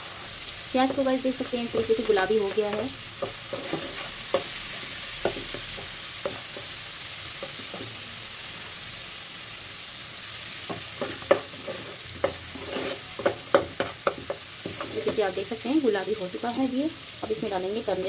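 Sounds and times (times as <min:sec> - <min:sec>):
paste sizzling in hot oil: 0:00.0 - 0:18.0
spoon knocking and scraping pan: 0:00.9 - 0:08.0, 0:10.6 - 0:15.5.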